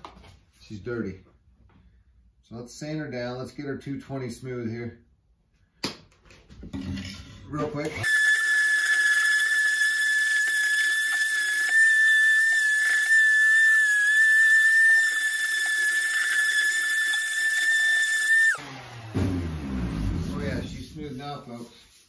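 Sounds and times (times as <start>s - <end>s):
electric sander whining: 8.0s - 20.2s.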